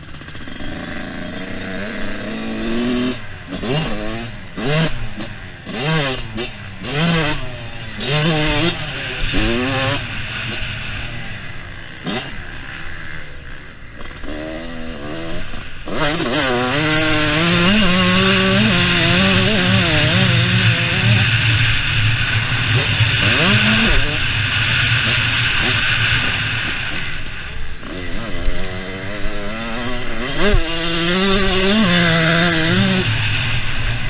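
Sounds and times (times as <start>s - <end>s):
two-stroke motorcycle engine revving: 0.0s - 34.0s.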